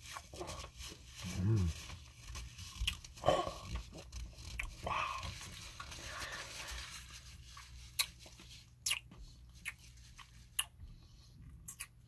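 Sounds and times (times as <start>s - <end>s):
paper napkin rustling: 0.0s - 8.8s
chewing: 7.9s - 10.8s, 11.4s - 12.0s
wet mouth clicks and smacks: 8.8s - 10.8s, 11.6s - 12.0s.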